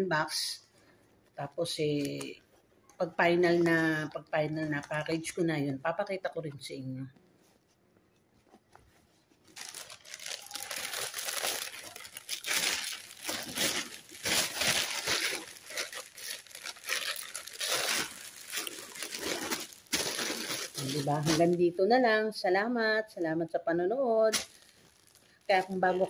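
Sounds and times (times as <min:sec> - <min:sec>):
plastic bag crinkling: 0:09.3 - 0:21.8, 0:24.0 - 0:26.0.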